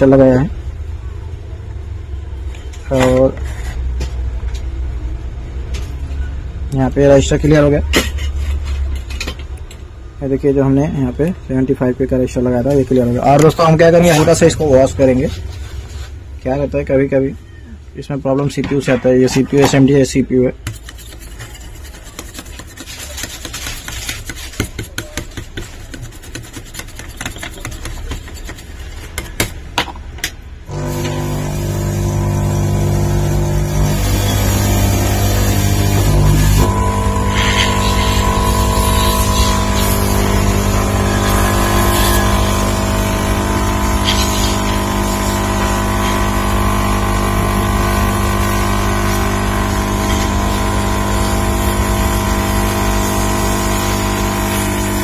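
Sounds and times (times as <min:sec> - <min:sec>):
handling clicks and scrapes: 0:07.9 - 0:09.8, 0:20.6 - 0:30.4
higher tone: 0:30.7 - 0:55.0
hot air gun blower whirring: 0:30.7 - 0:55.0.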